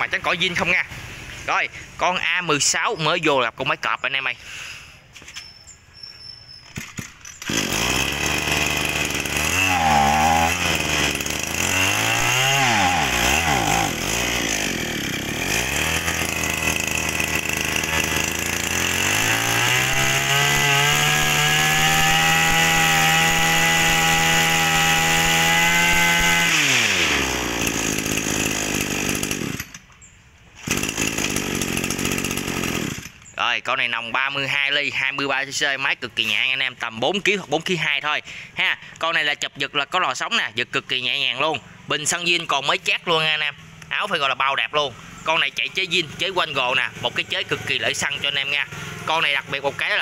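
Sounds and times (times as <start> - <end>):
brush cutter engine revving: 6.8 - 29.9, 30.6 - 33.4, 40.6 - 50.0.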